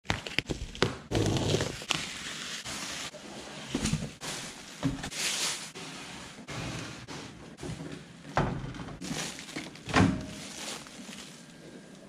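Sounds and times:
plastic wrapping crinkling: 0.1 - 5.8, 9.0 - 12.0.

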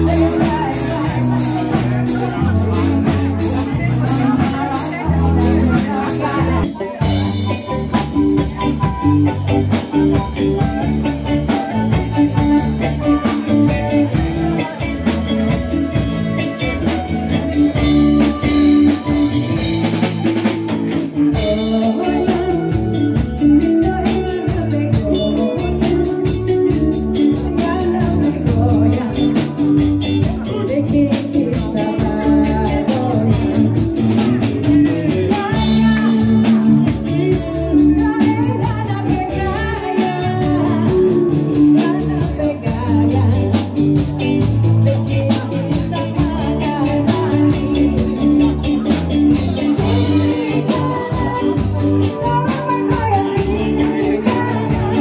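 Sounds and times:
live band playing dance music: 0.0 - 55.0
person singing: 0.0 - 55.0.

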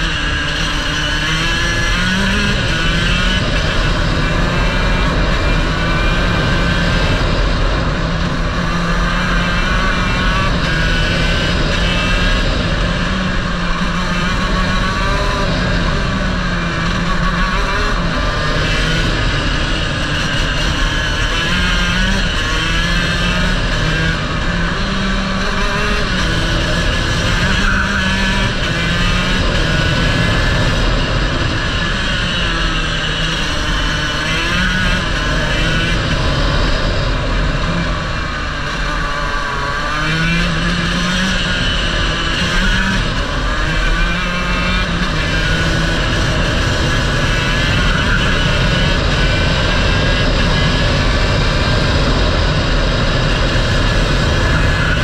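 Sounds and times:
racing kart engine revving: 0.0 - 55.0.

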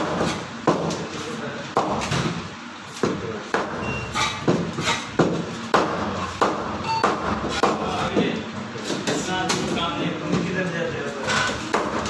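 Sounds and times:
cleaver chopping fish on wood: 4.4 - 7.8.

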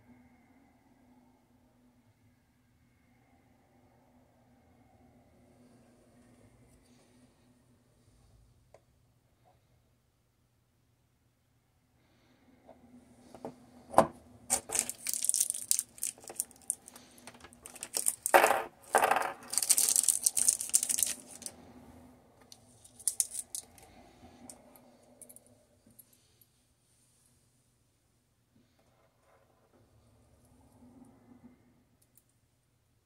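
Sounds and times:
metal screws clinking: 14.5 - 21.5, 22.9 - 23.8
plastic packet rustling: 14.5 - 21.5, 22.9 - 23.7.

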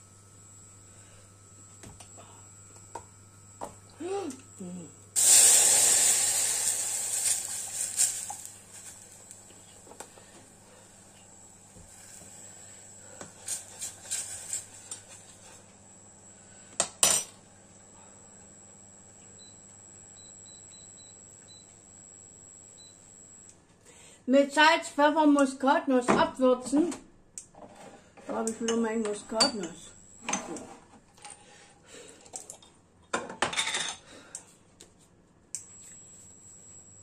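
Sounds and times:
milk sizzling in hot pot: 5.1 - 15.5.

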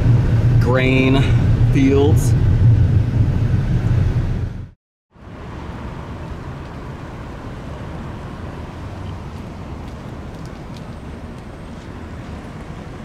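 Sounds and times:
low vehicle rumble: 0.0 - 13.0.

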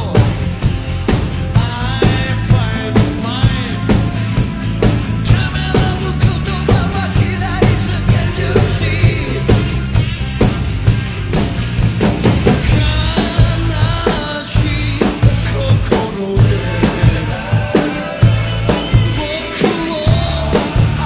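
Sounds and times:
man singing: 0.0 - 0.6, 1.5 - 4.5, 5.2 - 9.9, 12.6 - 21.0
acoustic drum kit: 0.0 - 21.0
bass: 0.0 - 21.0.

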